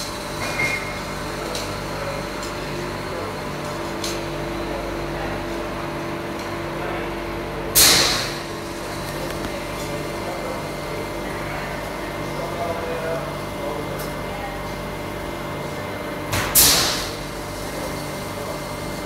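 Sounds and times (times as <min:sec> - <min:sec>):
machinery humming: 0:00.0 - 0:19.0.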